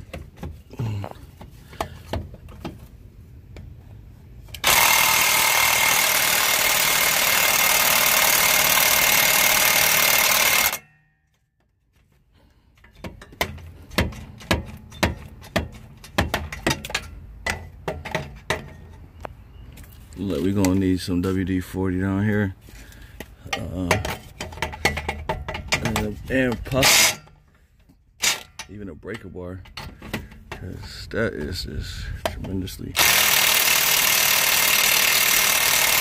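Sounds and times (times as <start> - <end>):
impact wrench hammering: 4.6 - 11.0, 12.9 - 18.8, 23.5 - 26.1, 33.0 - 36.0
sharp clicks and knocks: 12.8 - 20.0, 23.2 - 30.8.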